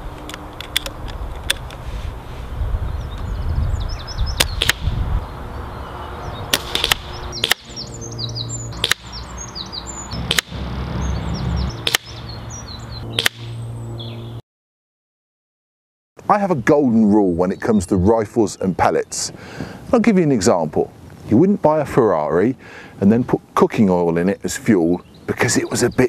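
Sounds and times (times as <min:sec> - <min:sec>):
metallic bolt clicks: 0:00.2 - 0:01.8
birds chirping: 0:02.6 - 0:14.4, 0:16.3 - 0:20.9, 0:22.1 - 0:26.0
air rifle shots cracking: 0:04.4 - 0:04.9, 0:06.5 - 0:07.8, 0:08.8 - 0:09.2, 0:10.2 - 0:10.7, 0:11.8 - 0:12.2, 0:13.2 - 0:13.6
low rumble: 0:08.5 - 0:14.1.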